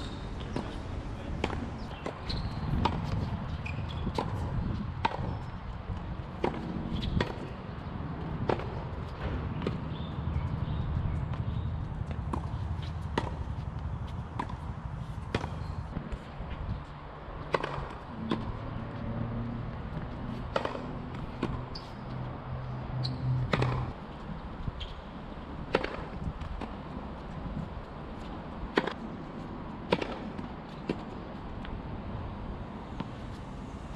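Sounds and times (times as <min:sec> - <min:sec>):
tennis ball struck by racket: 0:00.5 - 0:03.4, 0:06.3 - 0:07.5, 0:08.4 - 0:09.8, 0:12.0 - 0:13.7, 0:14.3 - 0:16.2, 0:17.4 - 0:18.6, 0:20.5 - 0:21.7, 0:23.5 - 0:23.9, 0:25.7 - 0:26.7, 0:28.7 - 0:29.0, 0:29.9 - 0:31.1
ball bouncing on hard court: 0:14.3 - 0:15.7, 0:20.5 - 0:22.0, 0:23.0 - 0:23.9.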